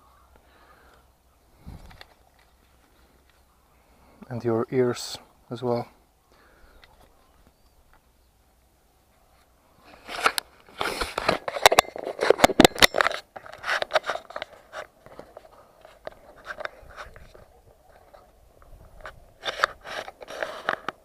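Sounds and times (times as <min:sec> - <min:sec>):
rustling: 0:06.4 - 0:21.0
crunching and scraping clicks: 0:09.9 - 0:21.0.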